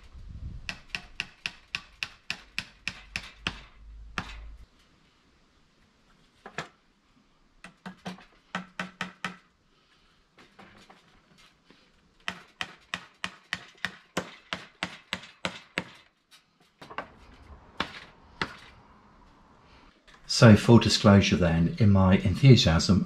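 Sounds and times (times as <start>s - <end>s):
hammer driving nails into wood: 0.7s - 4.5s, 7.6s - 9.5s, 12.2s - 16.1s.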